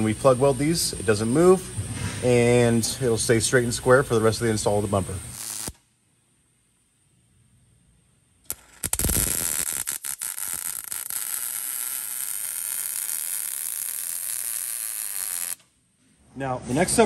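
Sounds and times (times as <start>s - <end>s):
welding arc crackling sizzle: 0.0s - 5.9s, 8.4s - 15.8s.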